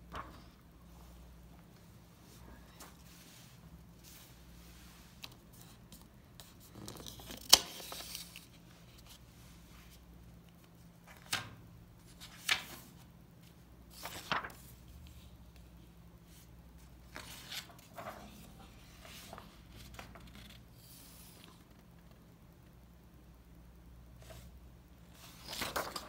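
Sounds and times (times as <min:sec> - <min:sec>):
paper pages rustling: 0:02.6 - 0:15.7, 0:16.3 - 0:21.7, 0:25.1 - 0:26.0.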